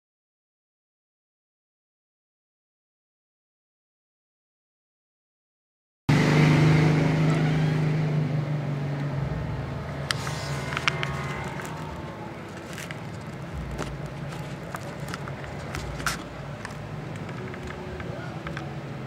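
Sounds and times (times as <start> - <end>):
low engine-like hum: 6.1 - 19.0.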